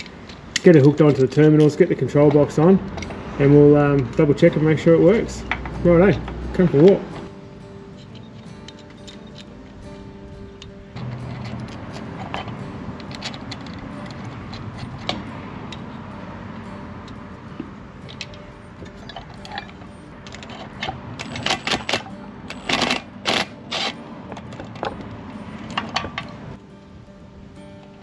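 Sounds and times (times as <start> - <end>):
small metallic clicks and clinks: 7.9 - 9.6, 18.0 - 26.4
metal parts clattering: 19.0 - 24.9.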